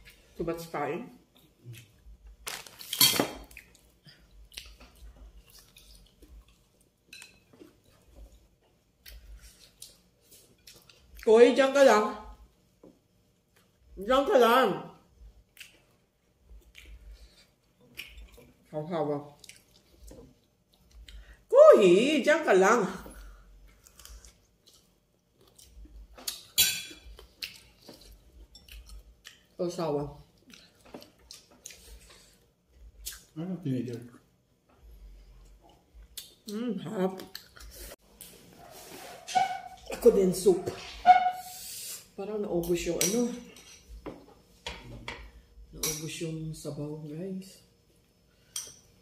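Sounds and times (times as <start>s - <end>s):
chewing and mouth sounds: 1.3s - 2.2s, 3.4s - 6.9s, 15.5s - 18.5s, 19.4s - 21.4s, 23.7s - 29.6s, 30.3s - 33.4s.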